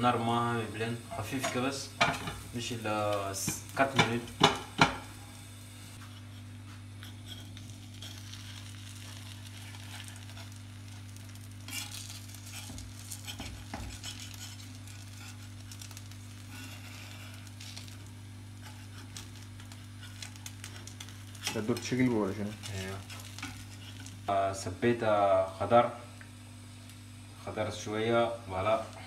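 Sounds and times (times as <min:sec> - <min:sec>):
omelette sizzling in frying pan: 0:00.0 - 0:29.0
steady low hum: 0:00.0 - 0:29.0
metal spoon scraping pan: 0:07.0 - 0:08.7, 0:11.7 - 0:15.6, 0:22.5 - 0:24.1.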